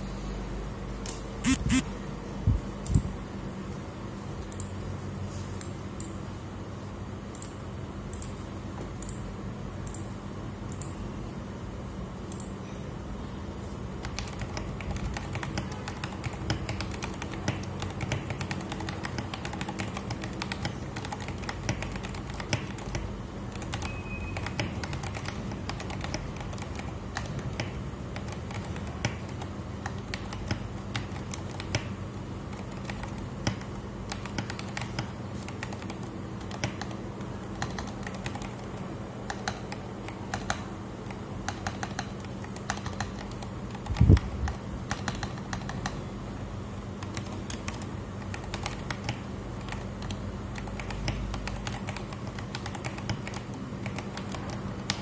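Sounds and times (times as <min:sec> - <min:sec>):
mechanical keyboard typing: 0:14.0 - 0:46.0, 0:46.9 - 0:55.0.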